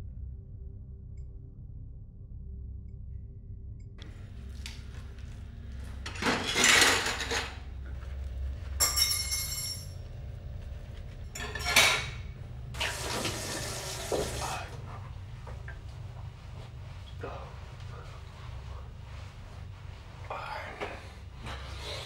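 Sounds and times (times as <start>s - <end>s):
steady low hum: 0.0s - 22.0s
crockery and cutlery clattering: 5.8s - 7.9s, 8.7s - 10.2s, 11.3s - 12.4s
dish clinking: 6.0s - 7.7s, 8.8s - 10.0s, 11.3s - 12.4s
water splashing in sink: 12.7s - 15.0s.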